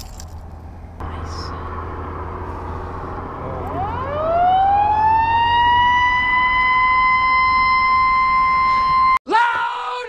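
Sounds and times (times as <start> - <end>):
siren winding up: 3.5 - 9.2.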